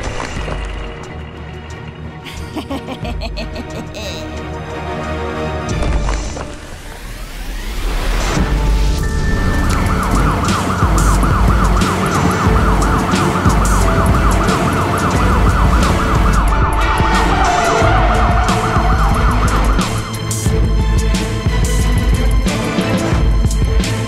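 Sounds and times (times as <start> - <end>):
background music: 0.0 - 24.0
police siren wailing: 9.1 - 20.4.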